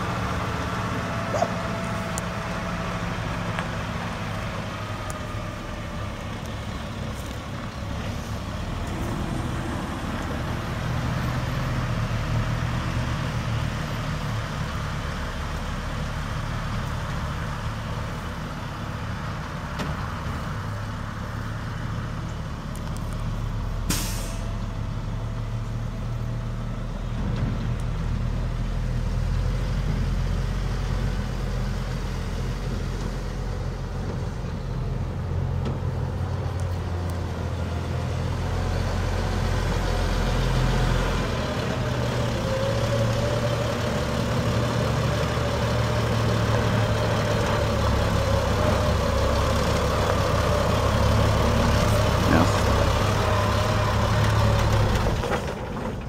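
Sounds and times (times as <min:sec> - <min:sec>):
diesel truck engine idling: 0:00.0 - 0:12.2, 0:30.4 - 0:56.0.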